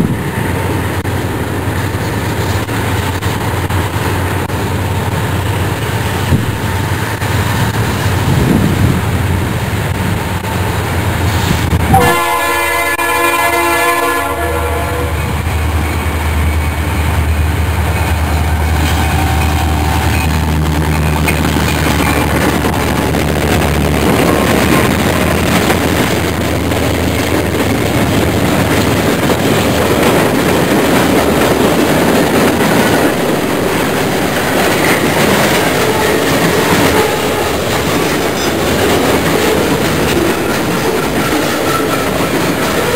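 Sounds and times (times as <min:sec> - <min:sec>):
diesel locomotive rumbling: 0:00.0 - 0:42.9
train air horn blast: 0:11.8 - 0:15.4, 0:35.8 - 0:37.6.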